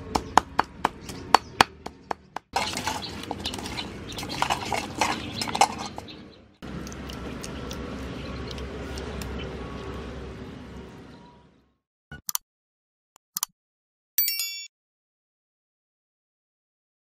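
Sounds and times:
hands squeezing wet meat: 0:02.6 - 0:06.0.

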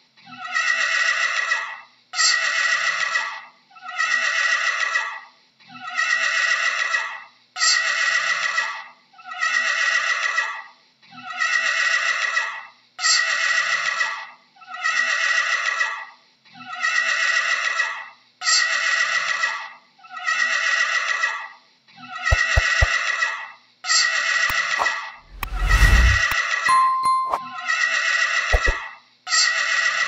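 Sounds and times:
sharp clicks: 0:22.3 - 0:22.9.

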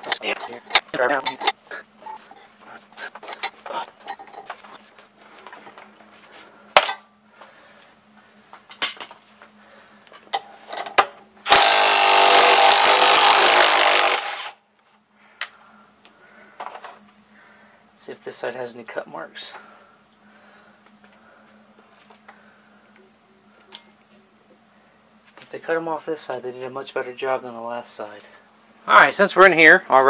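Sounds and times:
power tool spinning a screw: 0:11.5 - 0:14.6.

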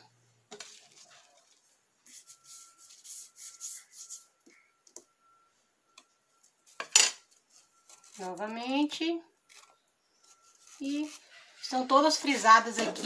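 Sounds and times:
foam rubbing on metal: 0:02.0 - 0:04.4
faint steady high tone: 0:02.0 - 0:13.0.

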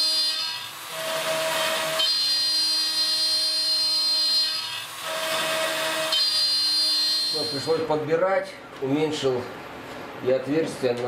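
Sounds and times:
router spindle high whine: 0:00.0 - 0:07.9.

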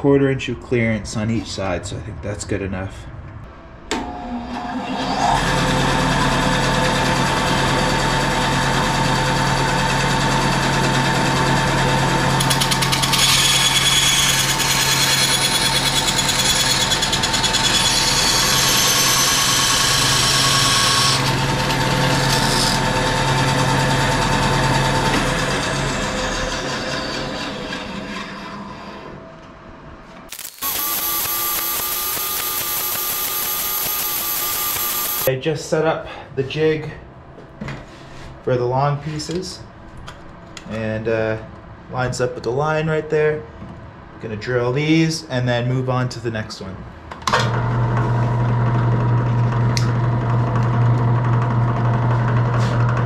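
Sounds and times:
bandsaw running: 0:05.1 - 0:28.2, 0:30.3 - 0:35.3
bandsaw blade cutting metal: 0:12.4 - 0:23.0, 0:30.3 - 0:35.3.

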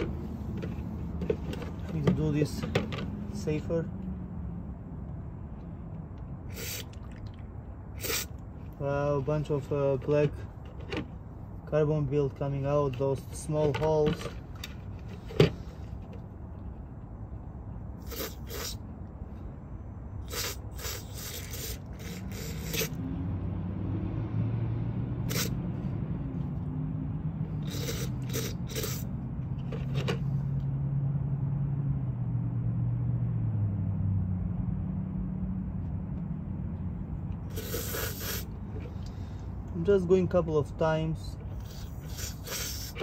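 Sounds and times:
aerosol spray hissing bursts: 0:06.5 - 0:07.0, 0:08.0 - 0:08.3, 0:18.0 - 0:18.8, 0:20.3 - 0:22.9, 0:25.3 - 0:25.6, 0:27.6 - 0:29.1, 0:37.5 - 0:38.5, 0:41.6 - 0:43.0.

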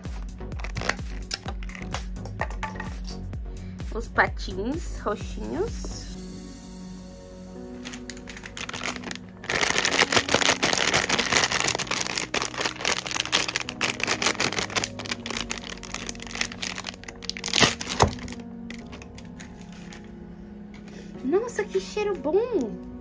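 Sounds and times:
plastic packaging crinkling: 0:00.5 - 0:02.0, 0:07.8 - 0:20.1.

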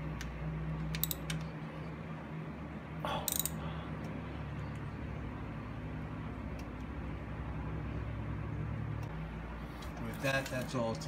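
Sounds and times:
steady low hum: 0:00.0 - 0:11.0
ratchet clicking: 0:00.8 - 0:01.4, 0:03.2 - 0:03.6
metal wrench clicks: 0:00.9 - 0:01.4, 0:03.3 - 0:03.6.

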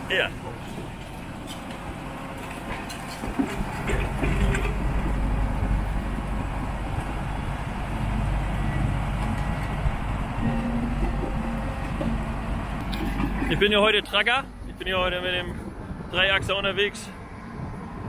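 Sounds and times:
dozer diesel engine under load: 0:00.0 - 0:16.5
steel tracks clanking: 0:00.0 - 0:16.5.

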